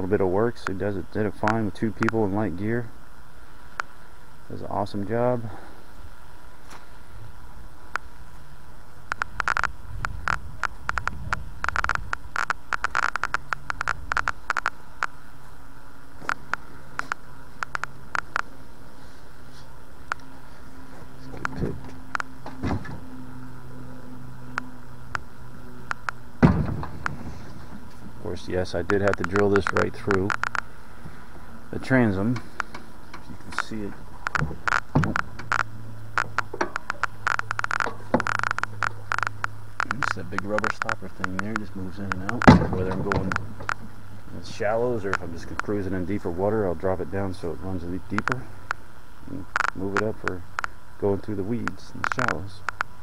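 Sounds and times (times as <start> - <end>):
low steady hum: 0.0 - 53.0
steady hiss: 0.0 - 53.0
irregular clicking: 9.0 - 15.2, 16.2 - 18.5, 21.3 - 23.0, 24.4 - 28.1, 28.8 - 31.2, 32.3 - 44.0, 49.5 - 50.8, 51.6 - 53.0.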